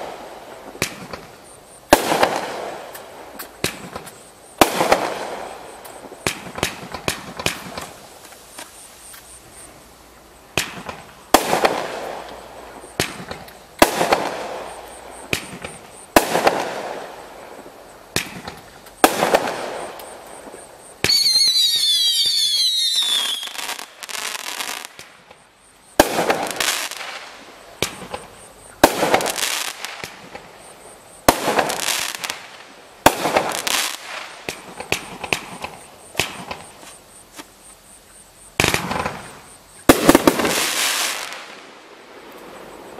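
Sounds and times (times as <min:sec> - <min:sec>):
fireworks reports and crackle: 0:00.0 - 0:37.5, 0:38.6 - 0:42.9
shrill falling whistles: 0:21.0 - 0:24.9.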